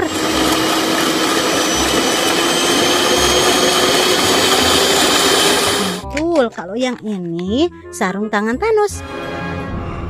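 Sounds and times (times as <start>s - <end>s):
electric hand mixer whisking: 0.0s - 6.0s.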